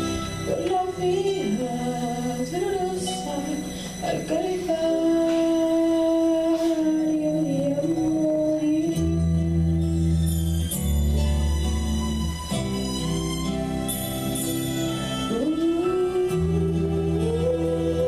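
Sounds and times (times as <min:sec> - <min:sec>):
instrumental accompaniment: 0:00.0 - 0:18.0
girl singing into microphone: 0:00.4 - 0:09.8, 0:15.3 - 0:18.0.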